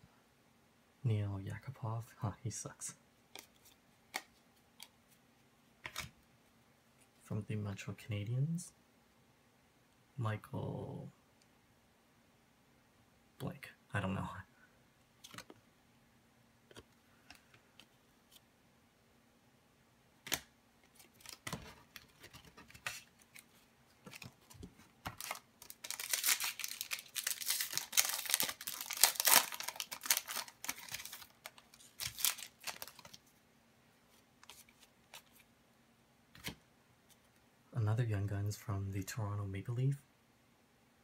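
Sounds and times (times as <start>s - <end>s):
foil wrapper tearing: 25.2s - 33.1s.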